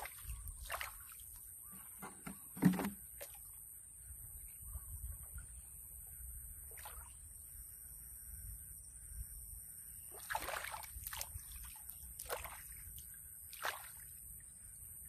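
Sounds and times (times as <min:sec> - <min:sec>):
hands splashing in muddy water: 0:00.0 - 0:01.2, 0:10.2 - 0:12.8, 0:13.5 - 0:14.0.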